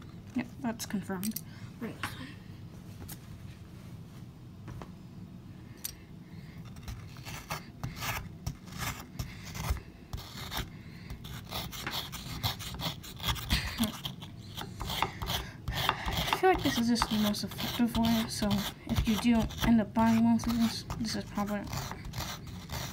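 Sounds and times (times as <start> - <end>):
plastic tool scraping plaster: 6.8 - 22.9.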